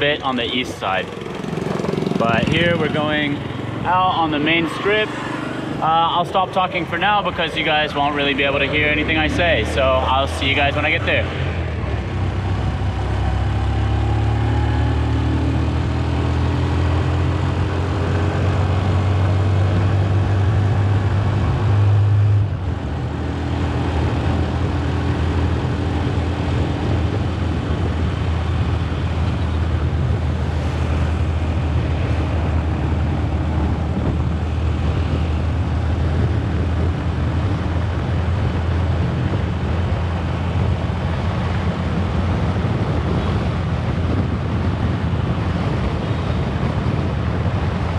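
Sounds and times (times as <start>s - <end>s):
wind rush over microphone: 0.0s - 47.9s
motor scooter engine: 1.0s - 4.5s.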